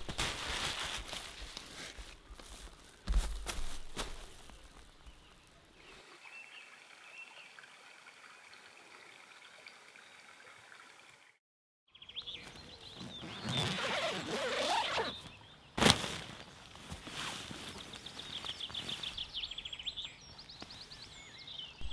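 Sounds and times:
tent fabric rustling: 0.0s - 4.7s, 12.4s - 19.2s
birdsong in woodland: 0.0s - 11.2s, 11.9s - 21.9s.

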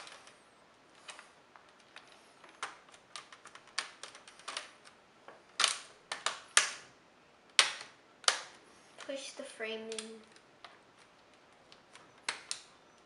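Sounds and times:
plastic clips snapping into place: 7.5s - 8.6s, 11.6s - 12.8s.

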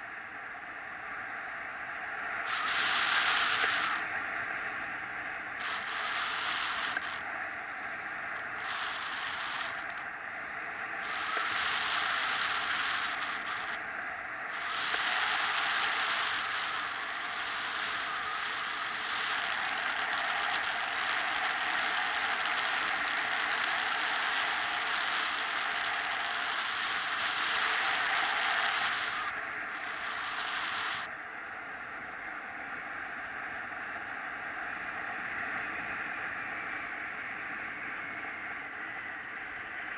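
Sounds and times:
wind rushing over microphone: 10.6s - 13.8s, 14.5s - 31.1s.

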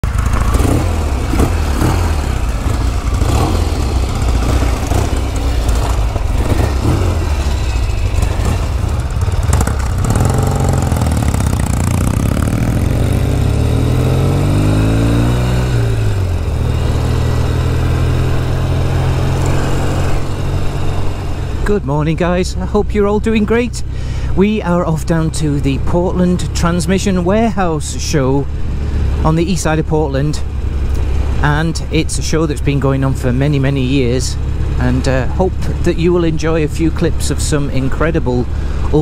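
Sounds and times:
motorcycle pulling away: 0.0s - 21.7s
motorcycle engines idling: 0.0s - 39.0s.

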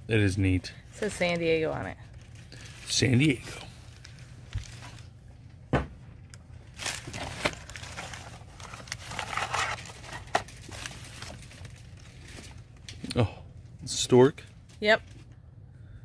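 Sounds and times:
packing paper rustling: 1.0s - 5.2s, 6.6s - 12.9s.

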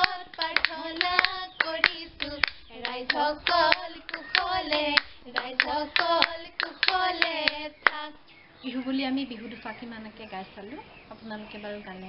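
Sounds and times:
hand claps: 0.0s - 8.0s
women singing folk song: 0.0s - 8.3s.

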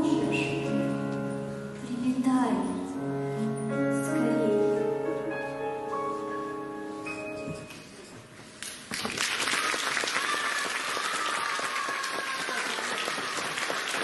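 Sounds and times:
singing and piano note: 0.0s - 7.7s
audience applause: 8.6s - 14.0s.

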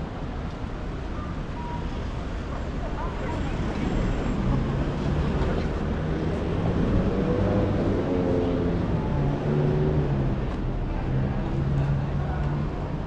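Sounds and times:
steady traffic noise: 0.0s - 13.0s.

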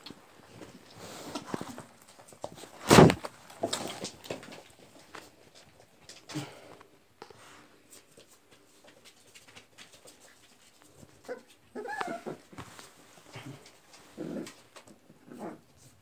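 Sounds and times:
puppies scuffling: 0.0s - 16.0s
puppy whimpering squeals: 11.3s - 12.4s.

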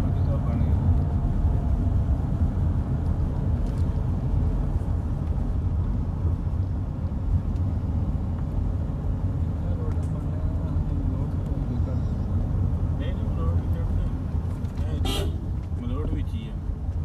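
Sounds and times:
car engine and tyre rumble: 0.0s - 17.0s.

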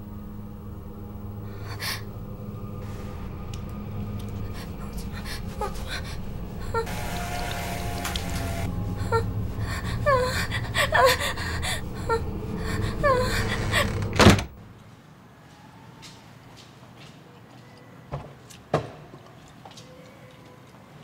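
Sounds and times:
low droning horror score: 0.0s - 14.7s
woman gasping and whimpering: 1.4s - 2.2s, 4.4s - 6.9s, 8.9s - 14.1s.

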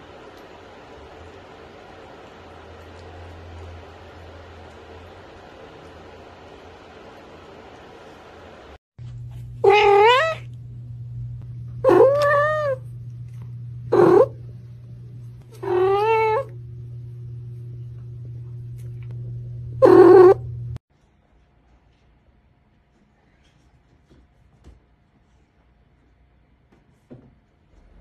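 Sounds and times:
steady low hum: 0.0s - 28.0s
cat meowing loudly: 9.6s - 10.5s, 11.8s - 12.8s, 15.6s - 16.5s.

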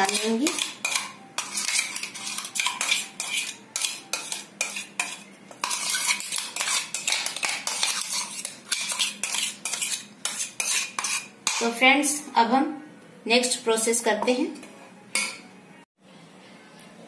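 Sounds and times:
metal spoon scraping steel jar: 0.0s - 11.7s.

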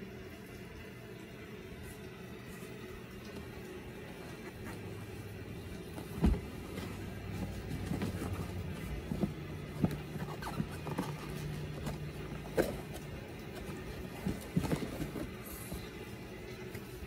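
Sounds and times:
steady low hum: 0.0s - 17.0s
cloth bag rustling: 3.4s - 16.2s
boot knocking: 6.0s - 12.9s.

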